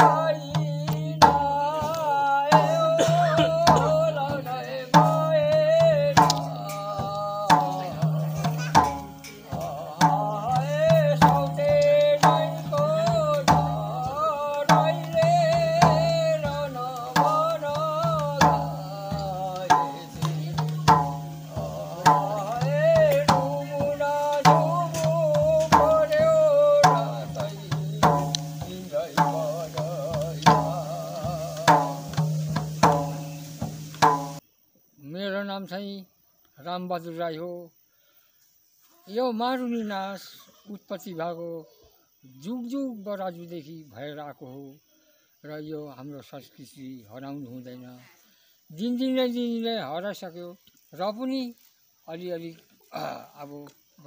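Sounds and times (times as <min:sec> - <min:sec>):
barrel hand drum beating: 0:00.0 - 0:34.4
elderly man singing: 0:00.0 - 0:34.4, 0:39.1 - 0:48.0, 0:48.7 - 0:54.0.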